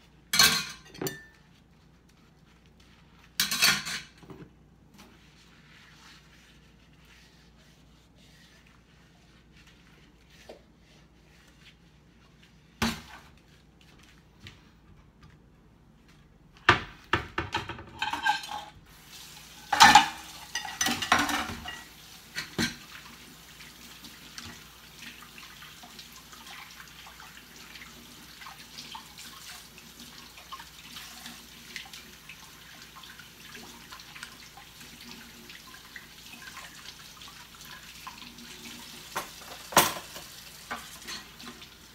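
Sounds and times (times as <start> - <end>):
dishes and utensils clattering: 0.3 - 1.5, 3.4 - 4.5, 17.4 - 18.8, 19.6 - 22.9, 39.1 - 41.6.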